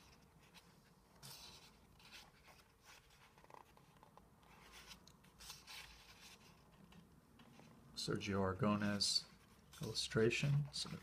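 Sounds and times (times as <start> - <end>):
paper pages turning: 0.0 - 7.7.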